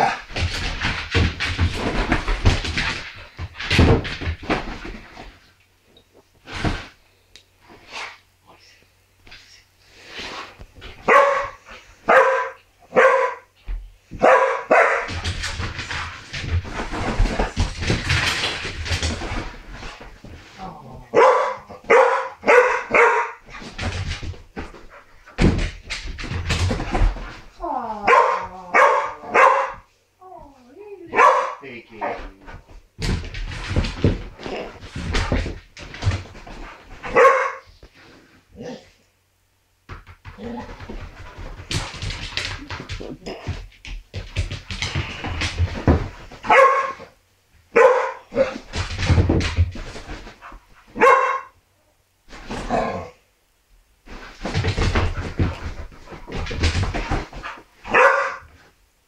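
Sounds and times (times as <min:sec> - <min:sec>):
dog scrambling on wooden floor: 0:00.0 - 0:05.5, 0:13.7 - 0:29.9, 0:32.1 - 0:37.7, 0:39.9 - 0:47.2, 0:47.8 - 0:51.5, 0:54.1 - 0:58.7
dog barking: 0:11.1 - 0:13.5, 0:14.2 - 0:15.1, 0:21.1 - 0:23.4, 0:28.1 - 0:29.9, 0:31.1 - 0:32.2, 0:37.1 - 0:37.7, 0:46.5 - 0:47.0, 0:47.7 - 0:48.5, 0:51.0 - 0:51.6, 0:57.9 - 0:58.5.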